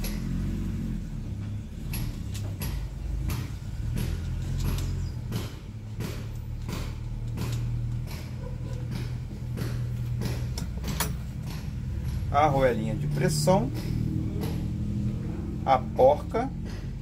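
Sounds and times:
small metal clicks and taps: 1.8 - 12.3.

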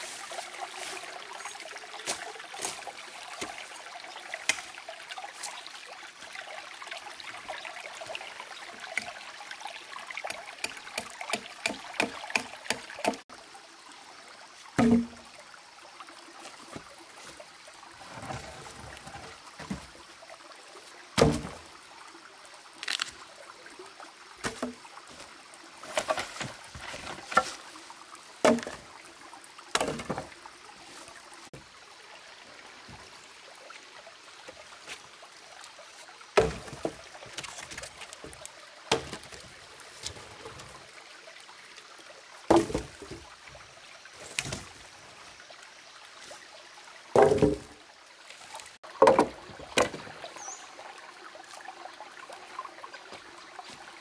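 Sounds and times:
water trickling: 0.0 - 54.0
dull thumps: 14.8 - 15.2.

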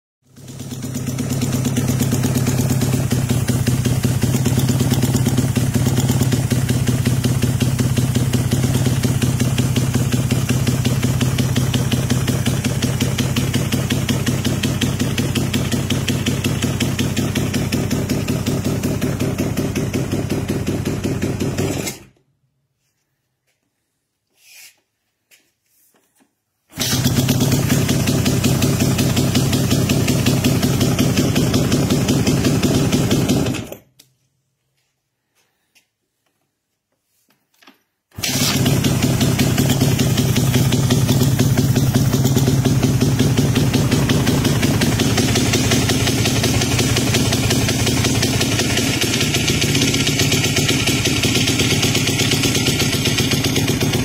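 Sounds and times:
motorcycle engine idling: 0.3 - 21.8, 26.7 - 33.7, 38.2 - 54.0.

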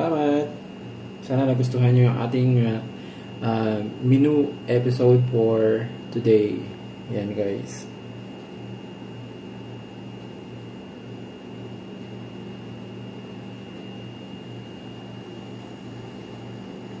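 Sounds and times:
low pulsing machine hum: 0.0 - 17.0.

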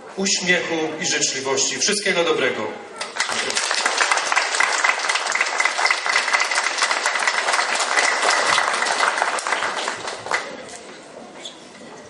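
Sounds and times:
audience applauding: 3.0 - 10.6.

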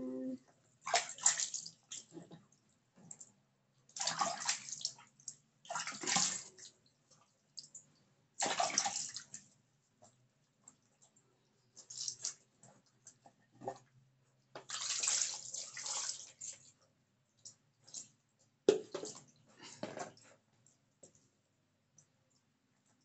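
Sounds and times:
water splashing: 4.0 - 4.9, 8.4 - 9.3.

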